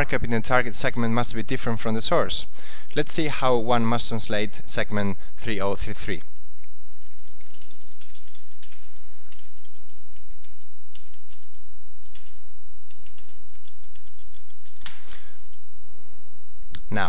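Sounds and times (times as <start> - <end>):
keyboard typing: 7.0 - 15.6.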